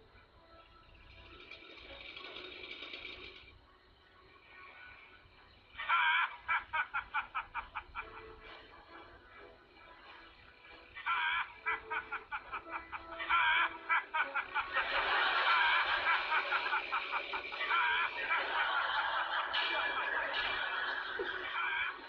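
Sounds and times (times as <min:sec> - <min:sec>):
people laughing hard: 0:04.4 - 0:22.0.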